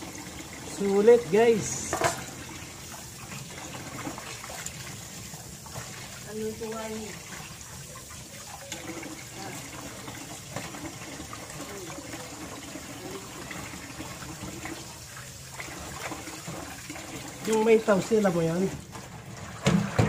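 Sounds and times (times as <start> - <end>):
hands rinsing fish in water: 0.0 - 20.0
small splashes and knocks: 1.7 - 2.5, 3.2 - 12.3, 13.4 - 20.0
tap running into steel sink: 1.8 - 2.3, 19.6 - 20.0.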